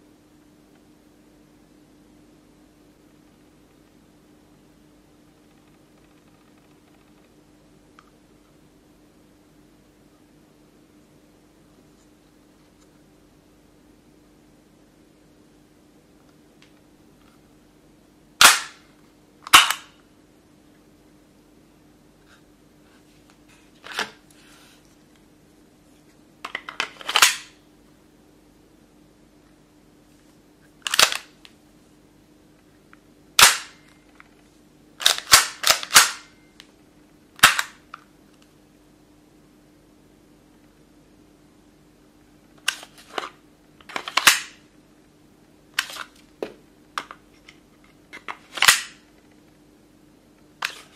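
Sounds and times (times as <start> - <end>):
airsoft pistol clicks and clacks: 19.5 - 19.9, 35.0 - 36.3.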